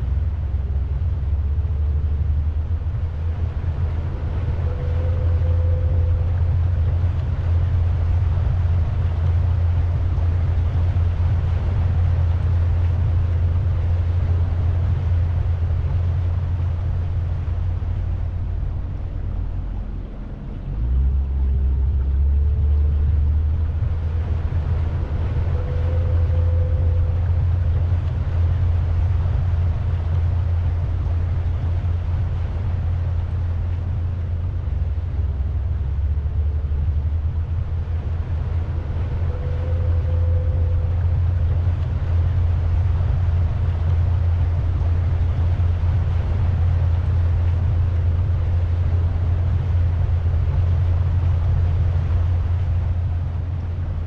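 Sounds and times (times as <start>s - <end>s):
boat motor rumble: 0.0s - 54.0s.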